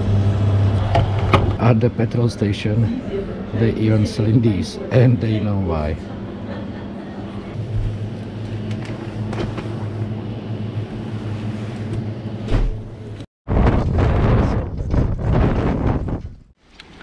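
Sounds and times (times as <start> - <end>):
refrigerator electrical hum: 0.0 - 13.3
wind buffeting microphone: 13.5 - 16.5.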